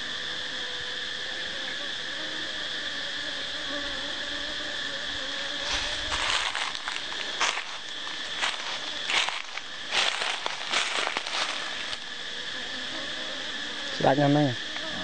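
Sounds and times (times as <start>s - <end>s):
honeybees buzzing: 0.0s - 15.0s
crackling rustling strokes: 5.6s - 12.1s.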